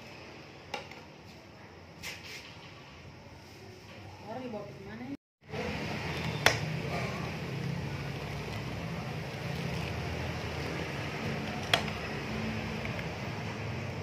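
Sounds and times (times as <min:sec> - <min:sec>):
broth boiling rumble: 0:05.4 - 0:14.0.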